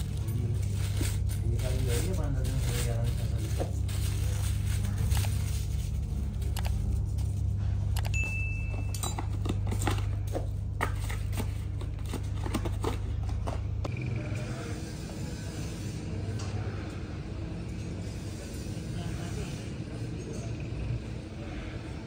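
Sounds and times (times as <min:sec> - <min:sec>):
paper rustling: 0:00.0 - 0:07.5
low machine hum: 0:00.0 - 0:22.0
metal forks clinking: 0:08.1 - 0:09.4.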